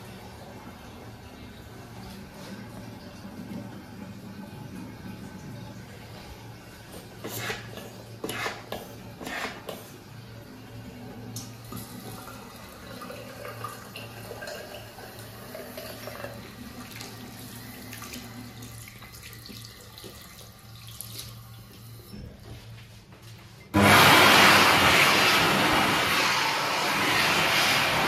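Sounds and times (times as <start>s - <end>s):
tap water running into basin: 0.0s - 22.2s.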